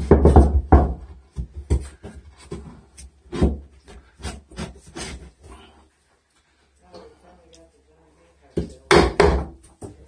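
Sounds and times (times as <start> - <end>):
wooden board scraping drywall: 1.6 - 5.5.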